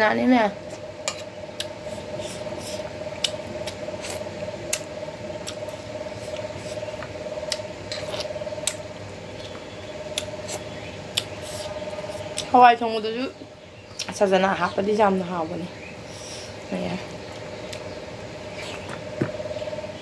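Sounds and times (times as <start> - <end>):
steady hum: 0.0 - 20.0
chewing and mouth smacks: 3.1 - 8.8.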